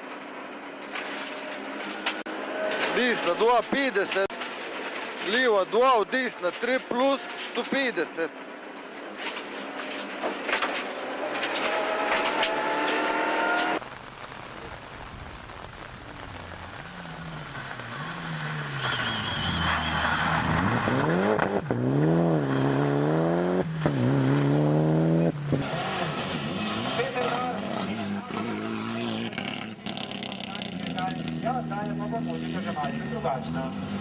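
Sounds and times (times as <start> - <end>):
rally car engine revving: 16.6 - 34.0.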